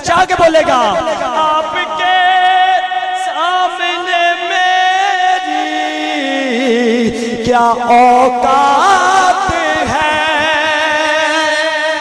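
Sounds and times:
man singing devotional song: 0.0 - 12.0.

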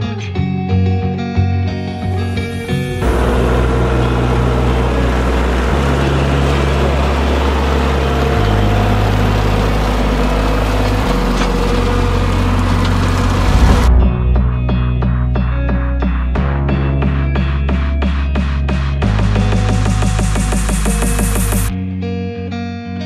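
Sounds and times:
guitar music: 0.0 - 23.0
tractor diesel engine running: 2.2 - 15.0, 19.0 - 21.7
rotary cutter mowing grass: 3.0 - 13.8.

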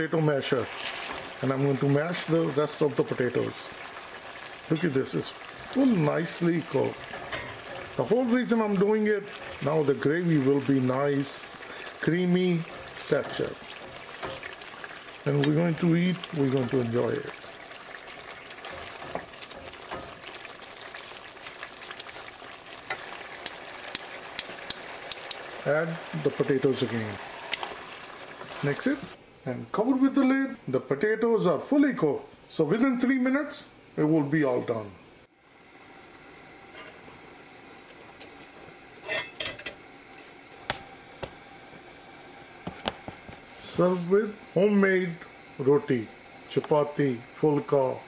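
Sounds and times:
faint steady hiss: 0.0 - 48.0
curry simmering with pops: 0.7 - 29.2, 39.5 - 43.6
tongs scraping on iron griddle: 12.7 - 14.5, 18.6 - 20.3, 39.0 - 39.8.

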